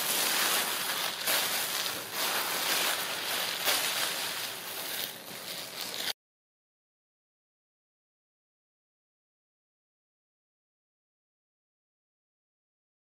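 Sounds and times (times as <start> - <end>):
kittens rustling tissue paper: 0.0 - 6.2.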